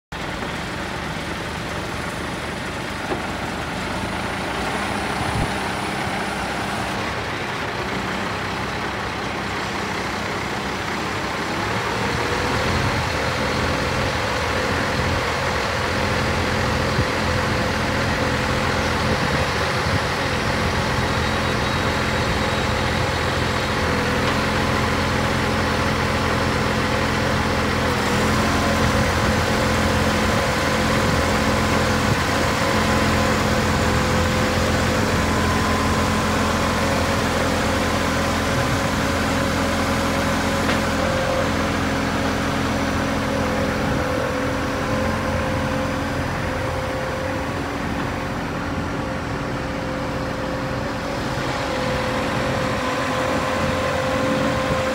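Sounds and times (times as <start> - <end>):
diesel truck engine running: 0.1 - 54.9
hydraulic crane whine: 0.2 - 54.9.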